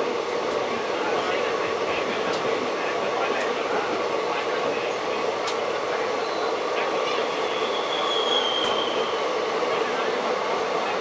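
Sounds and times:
passing train rushing rail noise: 0.0s - 11.0s
high wheel squeal: 6.2s - 6.6s, 7.4s - 9.2s.

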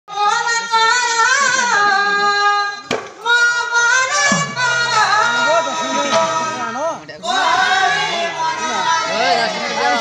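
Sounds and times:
high voice singing with vibrato: 0.1s - 10.0s
sharp knock: 2.8s - 3.3s.

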